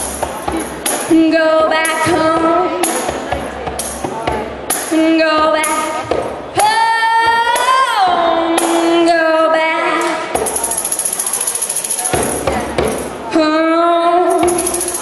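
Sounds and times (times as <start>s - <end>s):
woman singing into microphone: 1.1s - 2.9s, 4.9s - 10.4s, 13.3s - 14.8s
tambourine: 10.4s - 12.5s, 14.3s - 15.0s.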